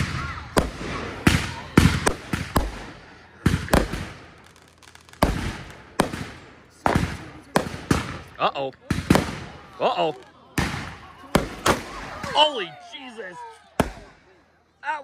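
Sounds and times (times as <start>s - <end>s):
fireworks bangs: 0.0s - 12.6s, 13.8s - 14.3s.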